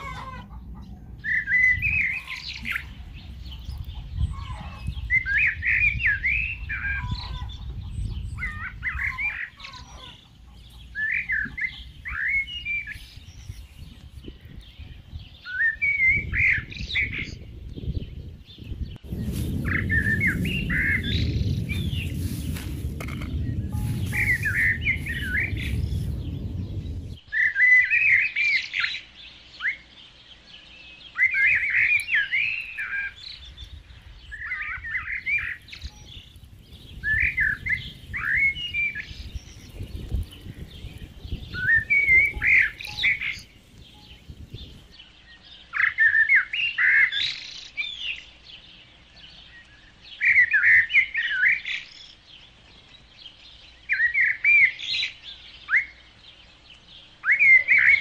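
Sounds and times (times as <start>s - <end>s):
low rumble: 0.0s - 9.3s, 17.4s - 27.2s, 32.6s - 45.0s
small birds chirping: 0.0s - 58.0s.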